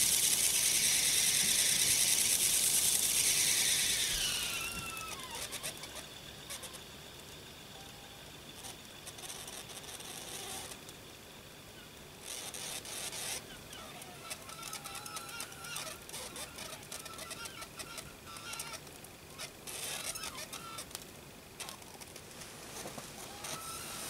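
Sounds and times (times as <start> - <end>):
steam hissing and spitting: 0.0 - 7.1, 22.3 - 24.0
squeaky whistles: 3.1 - 6.8.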